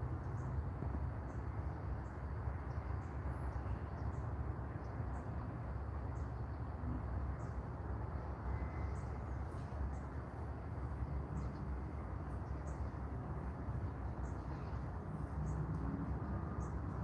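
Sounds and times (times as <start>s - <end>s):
small birds chirping: 1.2s - 17.0s
steady low rumble: 6.0s - 17.0s.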